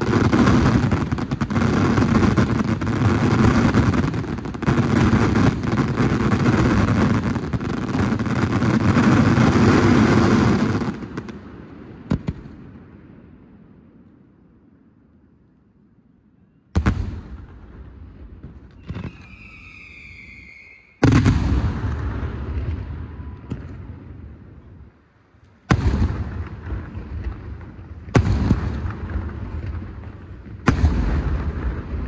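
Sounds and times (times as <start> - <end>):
high firework whistle: 18.7 - 21.3
small firework bang: 21.0 - 23.9, 30.4 - 31.9.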